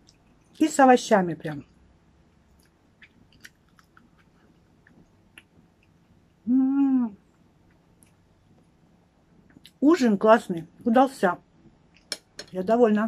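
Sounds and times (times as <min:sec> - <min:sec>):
chewing: 0:00.0 - 0:00.6, 0:02.3 - 0:06.4
woman humming mmm: 0:06.4 - 0:07.2.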